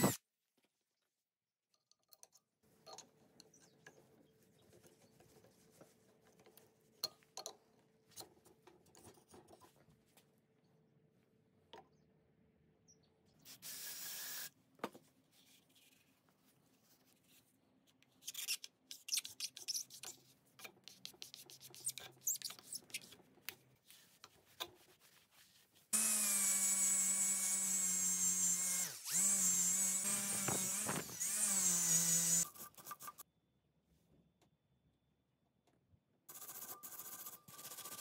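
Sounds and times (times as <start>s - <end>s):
cordless drill whining: 26.0s - 32.4s.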